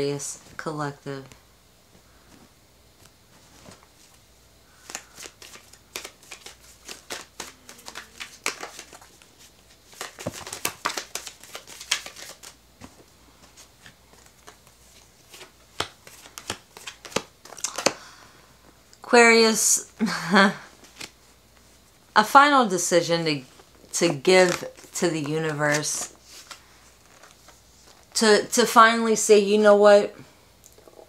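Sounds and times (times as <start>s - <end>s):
cards being shuffled: 4.8s - 18.0s, 20.8s - 21.2s, 23.5s - 28.2s.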